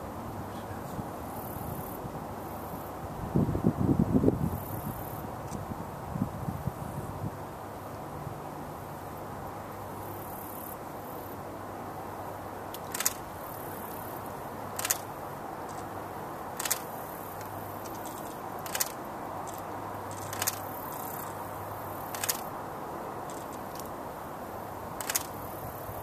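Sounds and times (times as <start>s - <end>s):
steady background hiss: 0.0s - 26.0s.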